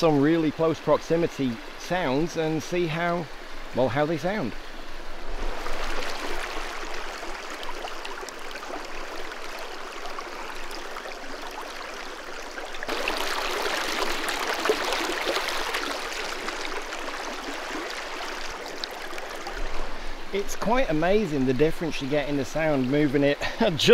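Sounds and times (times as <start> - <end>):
water rushing over rocks: 0.0 - 23.9.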